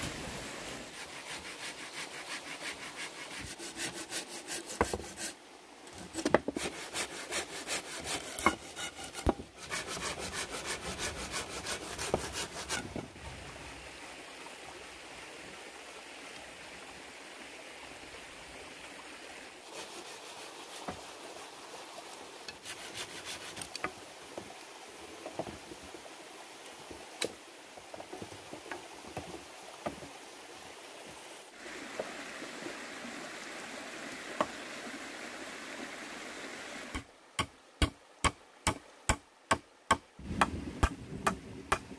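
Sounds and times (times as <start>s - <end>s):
hand saw cutting wood: 0.9s - 5.4s, 6.1s - 12.9s, 22.5s - 23.9s.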